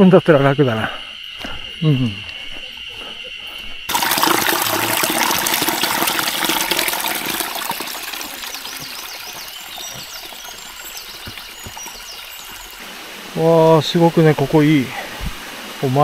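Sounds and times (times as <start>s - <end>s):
stream trickling over rocks: 3.9s - 16.0s.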